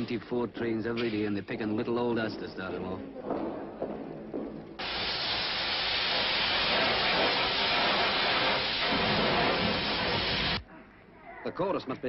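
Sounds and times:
pressurised jet hissing: 4.8 - 10.6.

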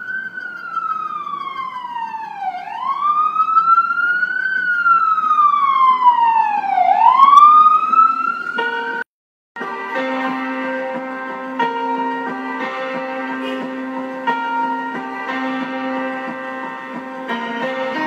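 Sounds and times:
siren-like wail: 0.0 - 9.0
music: 0.0 - 18.0.

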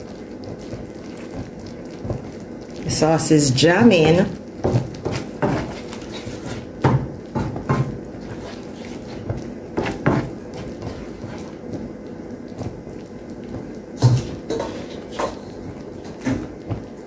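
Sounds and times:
sauce simmering in a pan: 0.0 - 17.0
utensil knocking and scraping pan: 4.6 - 11.5, 14.0 - 16.8.

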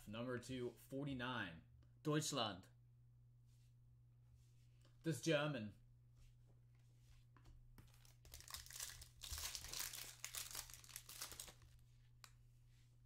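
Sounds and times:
foil wrapper crinkling and tearing: 8.0 - 11.8.

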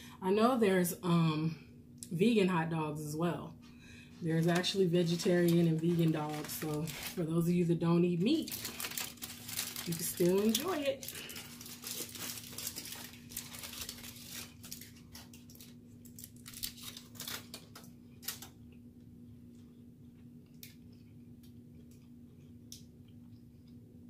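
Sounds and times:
faint steady hum: 0.0 - 24.0
foil wrappers crinkling: 4.2 - 18.6.

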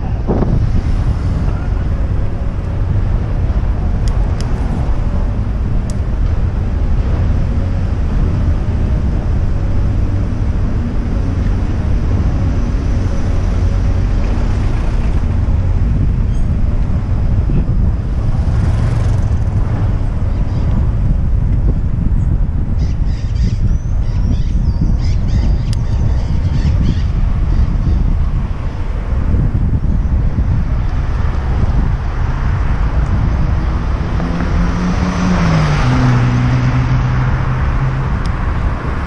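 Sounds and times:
tyres rolling on road: 0.0 - 22.7
wind buffeting microphone: 0.0 - 39.0.

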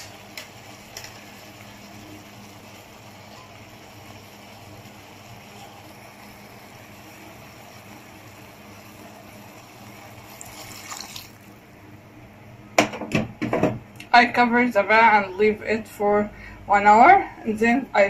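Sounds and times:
water splashing into pot: 9.6 - 11.6.

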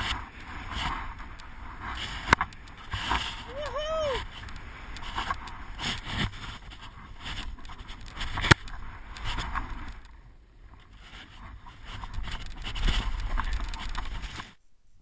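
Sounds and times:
skis swishing through snow: 0.0 - 9.9
wind rumble on camera: 0.0 - 14.6.

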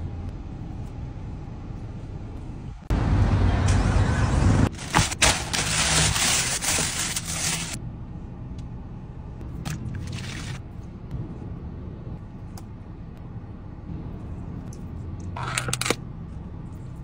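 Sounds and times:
steady low hum: 0.0 - 17.0
plastic bag and foil crinkling: 4.8 - 7.8.

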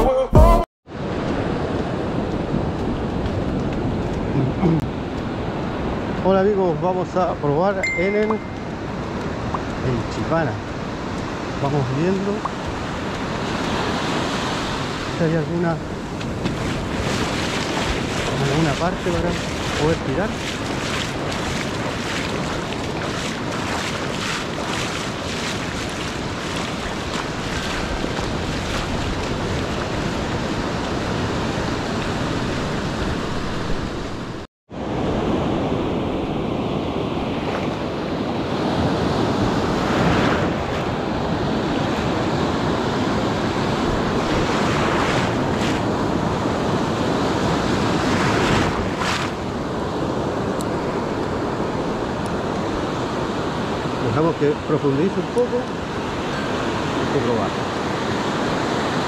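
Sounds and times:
ocean surf on beach: 0.9 - 59.0
waves breaking: 0.9 - 59.0
wind buffeting microphone: 12.2 - 34.4.

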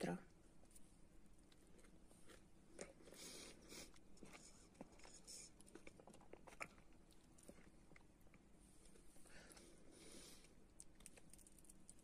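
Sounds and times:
chewing tomato: 1.3 - 9.1, 10.6 - 12.0.

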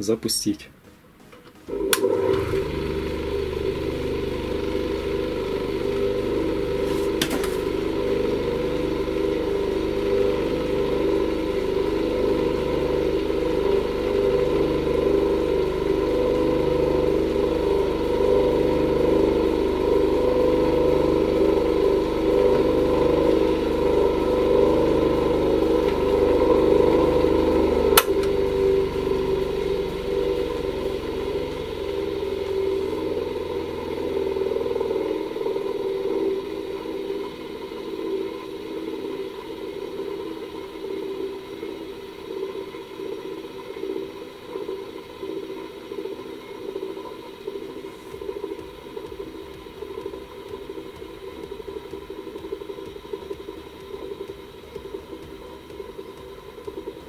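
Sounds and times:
bench grinder motor humming: 1.7 - 40.6.

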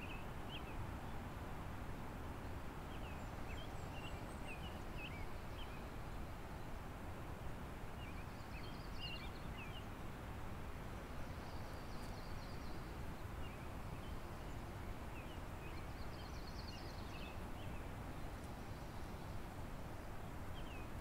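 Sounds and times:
small birds twittering: 8.0 - 9.9, 11.2 - 19.5.

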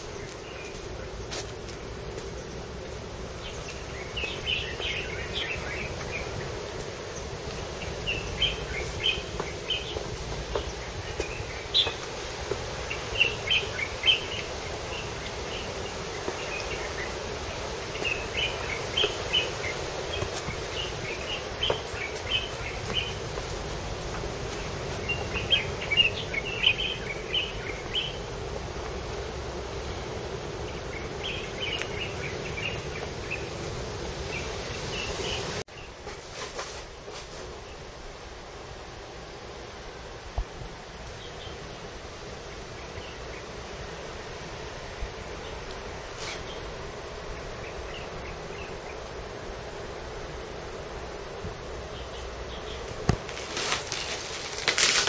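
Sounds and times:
steady low hum: 0.0 - 36.0
birds chirping: 0.0 - 55.0.

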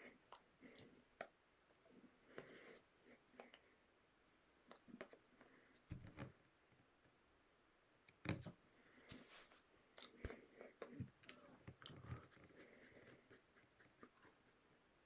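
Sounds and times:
soft rustles: 8.4 - 10.4.

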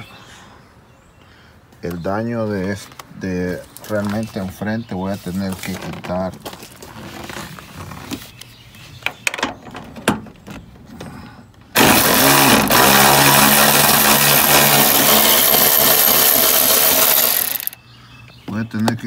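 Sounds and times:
electric ratchet motor spinning: 11.8 - 17.8.

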